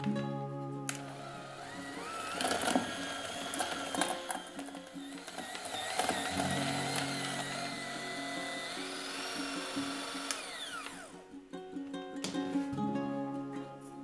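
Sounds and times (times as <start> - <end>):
light music: 0.0 - 14.0
electric hand mixer running: 1.0 - 11.2.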